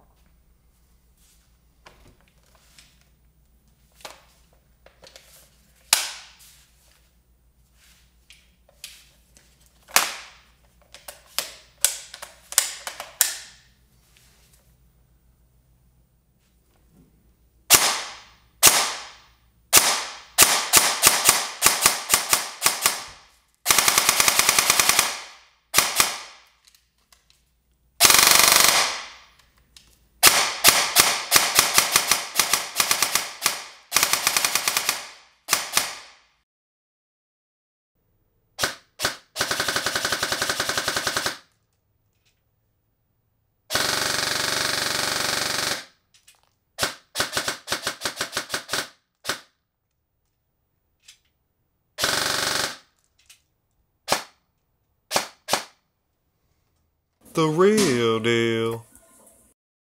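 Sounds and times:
airsoft gun single shots: 17.7 - 23.8, 55.1 - 55.8
airsoft gun full-auto bursts: 17.7 - 26.5, 28.0 - 29.3, 30.2 - 36.2, 38.6 - 41.5, 43.7 - 46.0, 46.8 - 49.5, 52.0 - 53.0.

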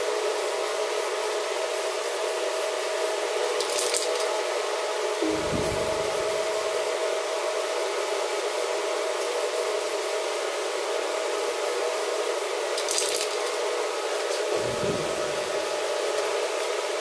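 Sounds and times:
fan whooshing: 5.2 - 6.9, 14.4 - 16.0.

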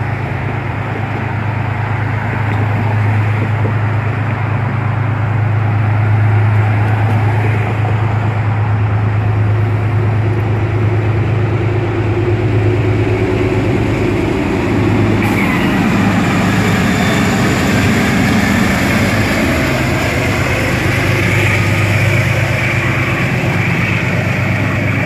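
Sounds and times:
train rolling across steel bridge: 0.0 - 25.0.

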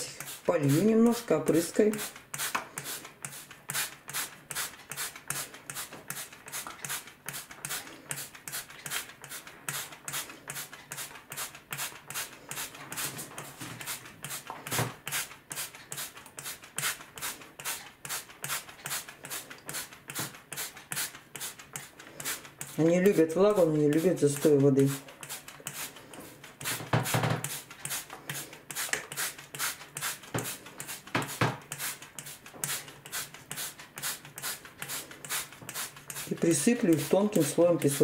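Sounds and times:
spray bottle squirting mist: 0.0 - 38.0.

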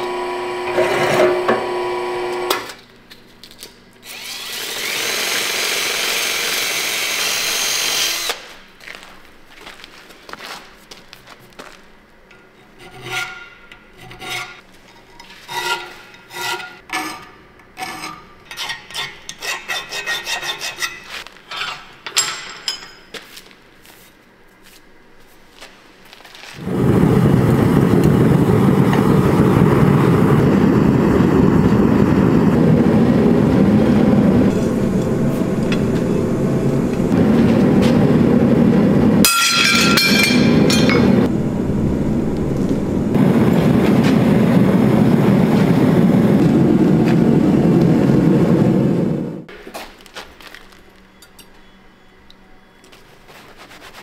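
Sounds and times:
gas forge burner roaring: 0.0 - 2.8, 26.6 - 49.6
hand file rasping on steel: 12.6 - 14.6, 15.4 - 21.2.

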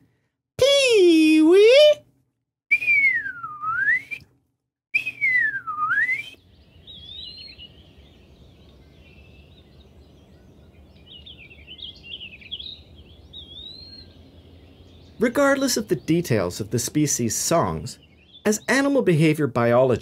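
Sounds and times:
slurred bird whistle: 2.7 - 4.3, 4.9 - 7.8, 11.2 - 14.2
songbird chirps and warbles: 5.0 - 20.0.

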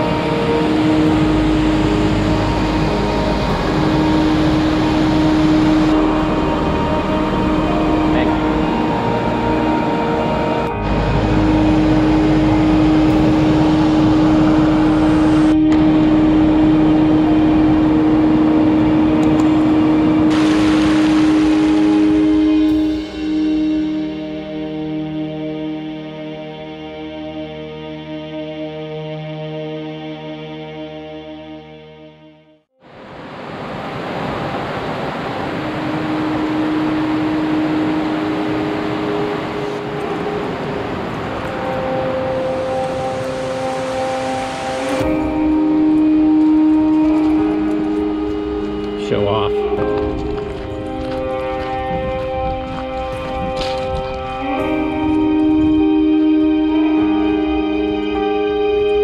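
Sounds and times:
low hum: 0.0 - 26.2, 35.3 - 59.0
waterfall splashing over rock: 19.2 - 22.8.

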